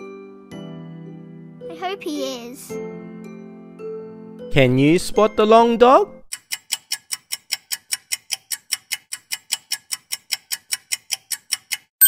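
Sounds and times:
clock ticking: 6.3 - 11.9.

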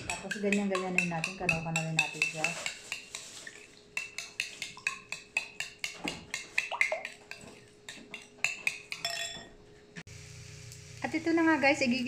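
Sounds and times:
utensil clinking in ceramic bowl: 0.0 - 9.5.

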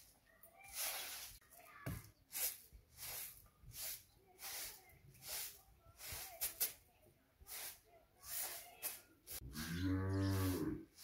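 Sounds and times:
broom sweeping earth: 0.0 - 11.0.

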